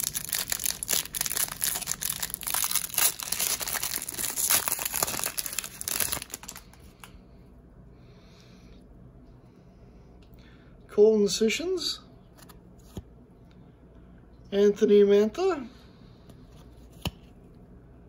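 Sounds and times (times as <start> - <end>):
foil wrapper crinkling and tearing: 0.0 - 7.0.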